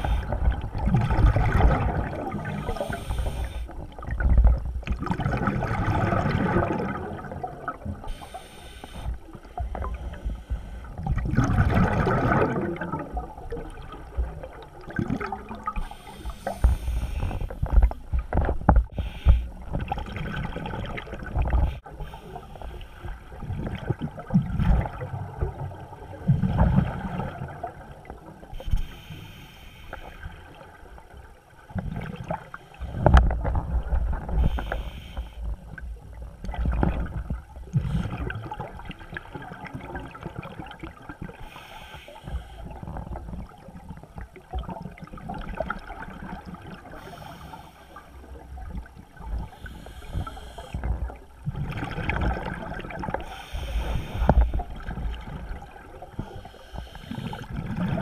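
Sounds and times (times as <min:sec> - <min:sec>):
gurgling exhaled bubbles: 0:00.0 - 0:08.1, 0:09.6 - 0:21.8, 0:23.1 - 0:28.5, 0:35.6 - 0:41.4, 0:42.6 - 0:47.1, 0:48.2 - 0:58.0
regulator inhalation hiss: 0:02.6 - 0:03.7, 0:08.1 - 0:09.2, 0:15.8 - 0:17.5, 0:19.0 - 0:19.5, 0:34.4 - 0:35.5, 0:41.5 - 0:42.7, 0:47.0 - 0:48.2, 0:49.5 - 0:50.8, 0:53.2 - 0:54.6, 0:56.4 - 0:57.4.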